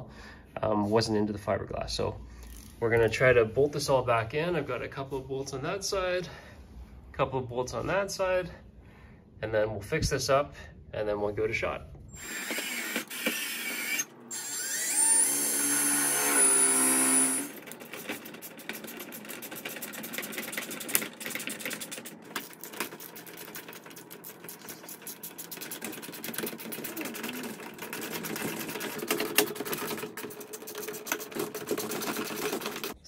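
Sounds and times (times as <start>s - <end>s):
cordless drill spinning: 12.1s - 33.0s
hand tools clicking and rattling: 15.2s - 33.0s.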